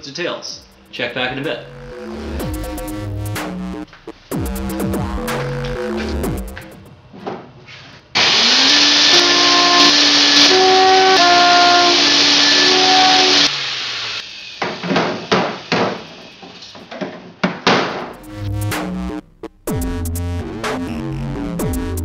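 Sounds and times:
organ pipes sounding: 0.7s - 6.6s.

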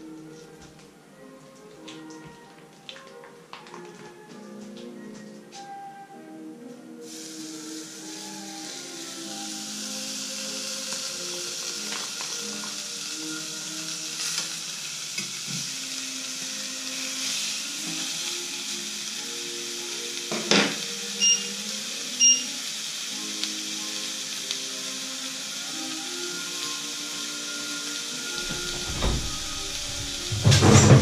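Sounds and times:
steaks sizzling in grill pan: 7.0s - 31.0s
short electronic beeps: 22.2s - 22.4s.

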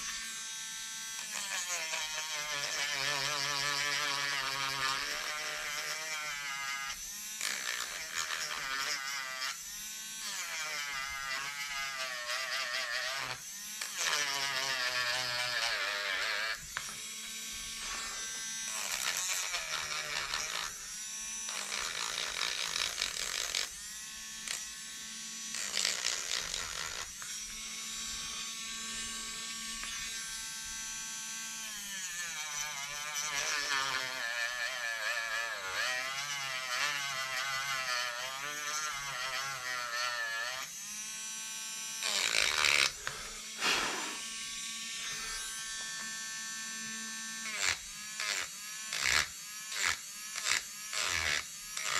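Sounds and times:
rotary tool motor whine: 0.0s - 51.9s
grinding hiss: 42.6s - 46.1s.

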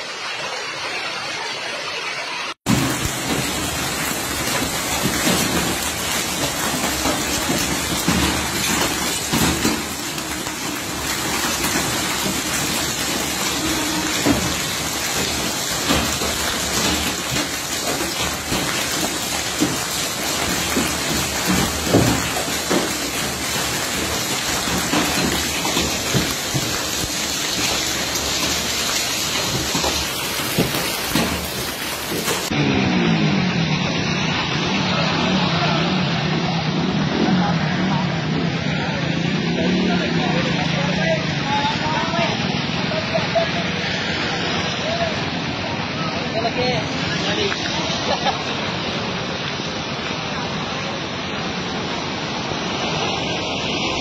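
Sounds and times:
hailstones striking surfaces: 2.7s - 32.5s
rain and hail pelting: 2.7s - 32.6s, 38.7s - 54.0s.

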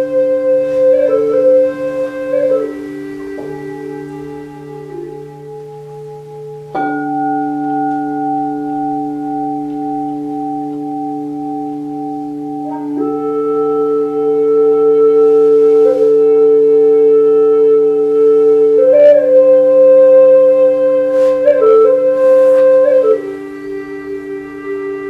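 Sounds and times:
low steady drone: 0.0s - 25.0s
wooden flute long notes: 0.0s - 25.0s
metal singing bowl ringing: 2.5s - 14.3s.

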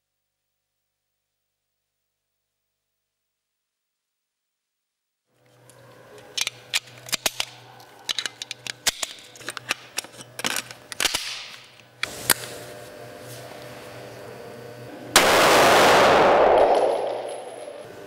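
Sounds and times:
steady low hum: 5.4s - 18.0s.

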